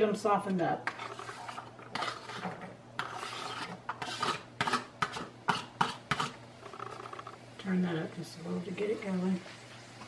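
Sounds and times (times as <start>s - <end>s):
vegetables scraped off plate: 0.9s - 7.3s.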